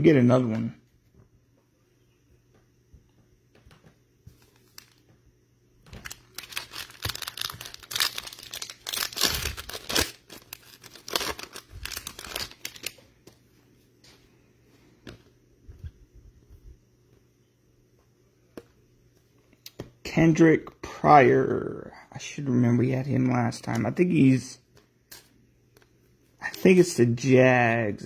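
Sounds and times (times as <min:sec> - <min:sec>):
plastic wrapper tearing: 0:05.9 - 0:13.0.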